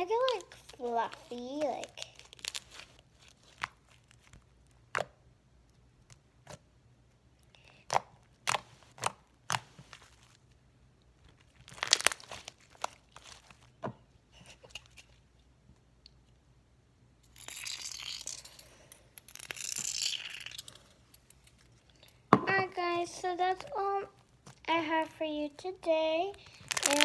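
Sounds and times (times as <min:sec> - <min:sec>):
slime popping and crackling: 0:00.0 - 0:05.2, 0:11.4 - 0:13.4, 0:19.2 - 0:20.7, 0:26.4 - 0:27.0.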